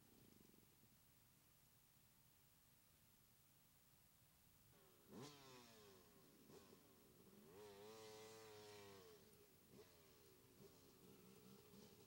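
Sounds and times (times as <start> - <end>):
distant dirt bike engine revving: 4.8 - 12.0.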